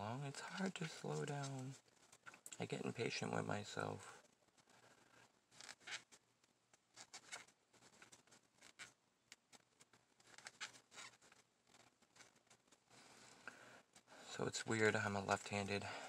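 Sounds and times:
yarn squeaking with crochet hook: 5.5s - 6.2s, 10.2s - 12.5s.

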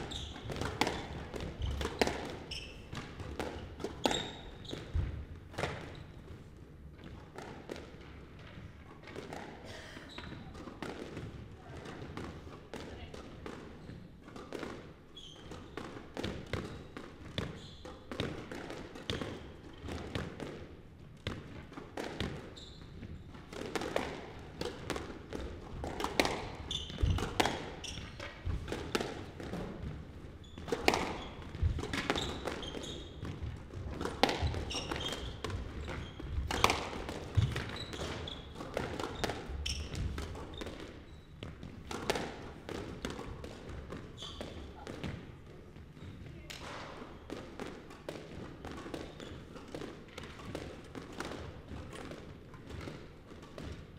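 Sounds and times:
shoes squeaking on wooden floor: 0.0s - 6.4s, 15.1s - 15.8s, 16.6s - 18.2s, 22.5s - 23.3s, 26.2s - 28.7s, 29.5s - 41.9s, 44.0s - 46.5s
squash ball smacking rackets and walls: 0.0s - 53.9s.

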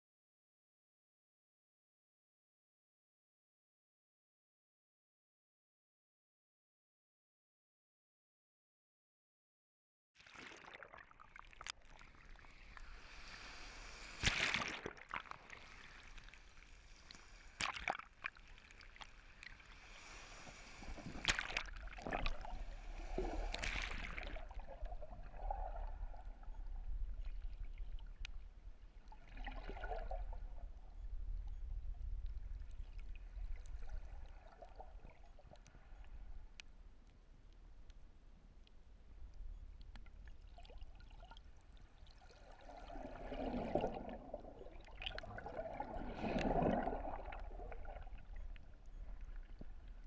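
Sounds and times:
muffled underwater surf rumble: 19.6s - 28.9s, 42.6s - 50.0s.

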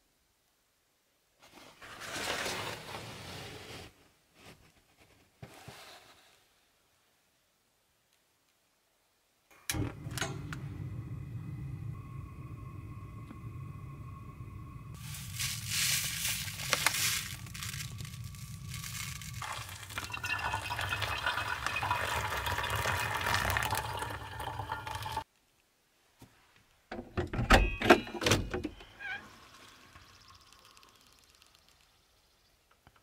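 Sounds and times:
coffee grounds rustling: 14.9s - 24.5s
water pouring from a kettle: 15.0s - 25.3s, 29.2s - 31.9s.

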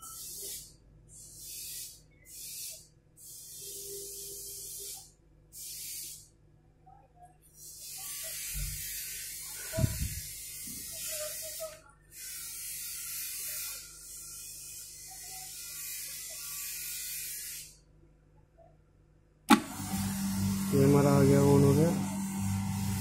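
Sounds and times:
milk cooler hiss and hum: 19.5s - 23.0s.

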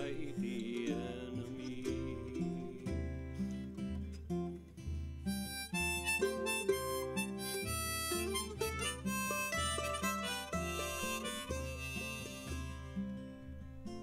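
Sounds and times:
strummed acoustic guitar: 0.0s - 14.0s
harmonica melody: 5.1s - 14.0s.

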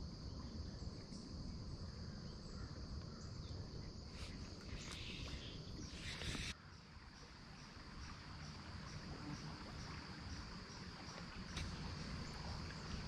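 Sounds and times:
insects trilling: 0.0s - 13.0s
small stream rushing: 4.2s - 13.0s.

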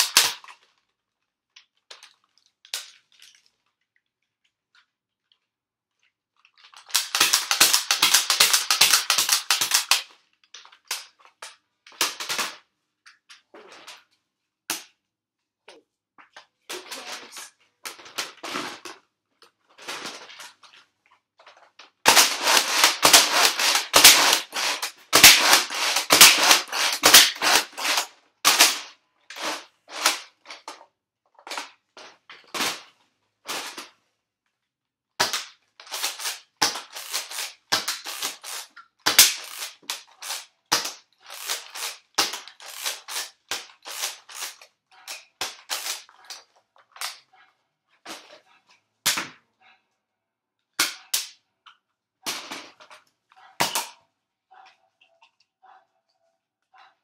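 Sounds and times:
toy blasters firing foam darts: 6.9s - 10.1s, 22.1s - 30.3s, 35.2s - 46.1s, 50.8s - 51.4s.

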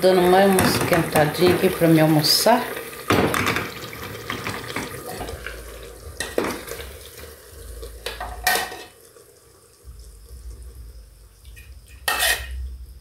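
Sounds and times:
metal spoon clinking in a pot: 11.9s - 12.6s.

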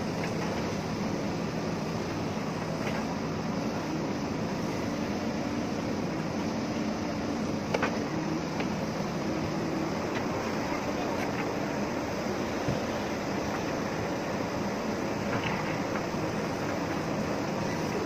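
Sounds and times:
diesel engine running: 0.0s - 18.0s.

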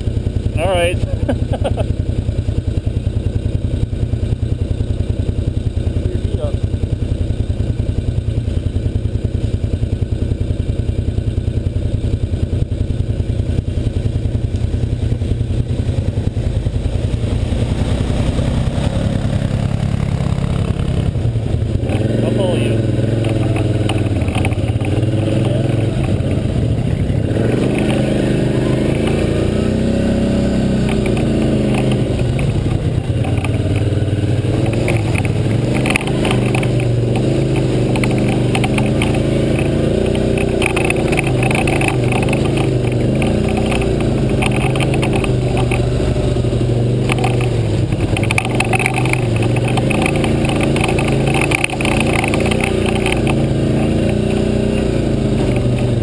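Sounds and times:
atv engine running: 0.0s - 56.0s
mud and water splashing: 14.1s - 56.0s.

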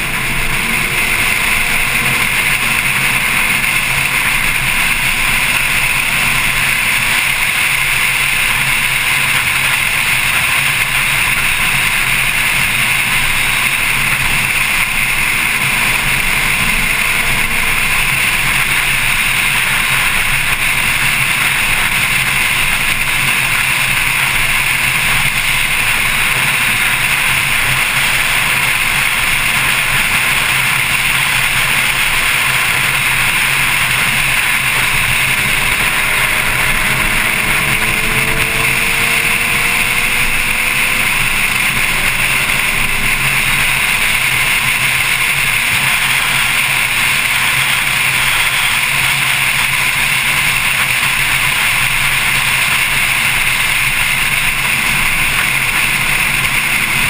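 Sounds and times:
car drivetrain running: 0.0s - 57.0s
road noise: 0.0s - 57.0s
faint rising and falling tones: 32.1s - 45.4s.

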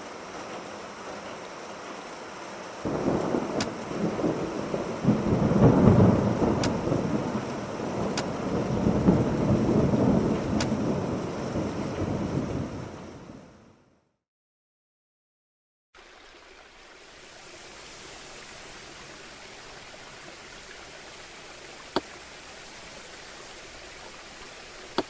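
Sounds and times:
thunder rumbling: 2.8s - 13.4s.

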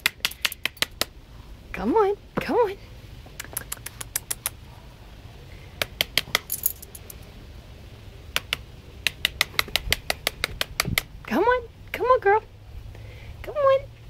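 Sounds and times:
dog claws clicking on concrete: 0.0s - 1.1s, 3.4s - 4.6s, 5.8s - 7.2s, 8.4s - 11.1s.

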